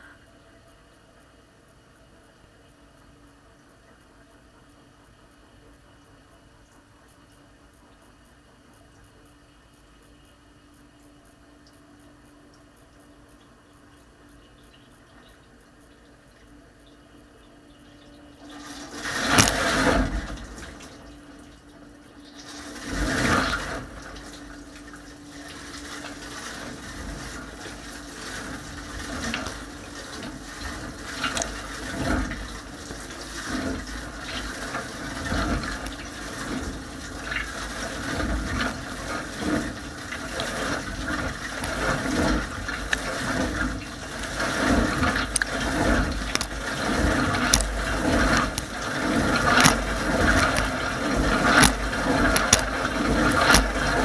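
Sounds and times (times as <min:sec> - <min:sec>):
steady hum: 0:00.0 - 0:54.0
dishwasher water spray splashing: 0:18.4 - 0:21.5, 0:22.2 - 0:54.0.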